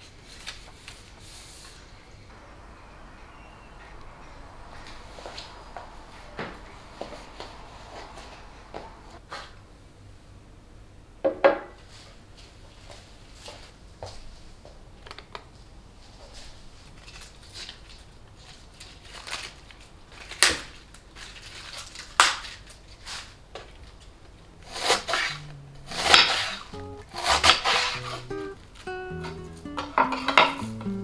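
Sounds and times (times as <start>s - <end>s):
knife cutting cabbage: 24.7s - 25.3s, 25.9s - 28.3s.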